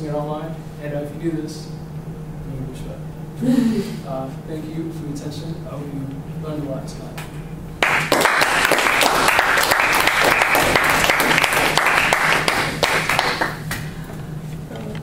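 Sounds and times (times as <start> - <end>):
audience clapping: 7.8 - 14.0.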